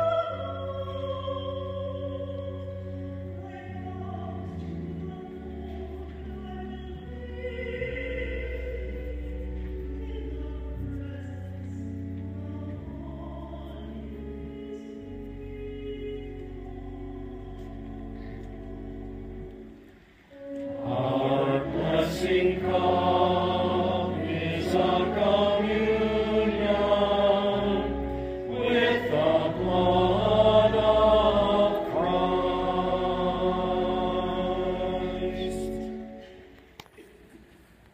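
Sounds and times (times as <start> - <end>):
choir singing: 0.0 - 11.4, 20.3 - 36.4.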